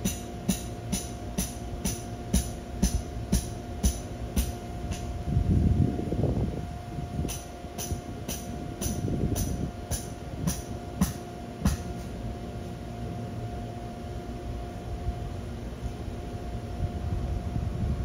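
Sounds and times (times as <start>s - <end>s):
sharp knocks: 7.3s - 11.9s.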